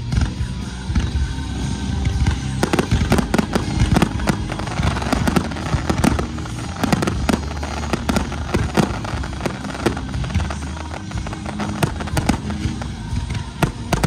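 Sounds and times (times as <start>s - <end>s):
fireworks bangs and crackling bursts: 0.0s - 14.0s.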